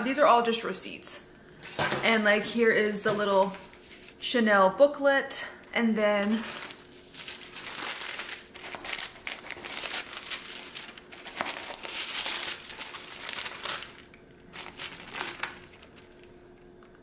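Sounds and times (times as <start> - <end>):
paper packaging crinkling: 6.2 - 16.4.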